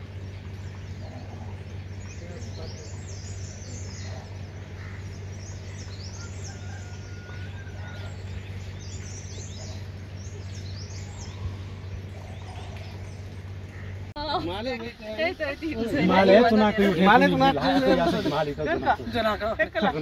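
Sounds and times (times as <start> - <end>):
small birds chirping: 0.0 - 14.5
steady low hum: 0.0 - 20.0.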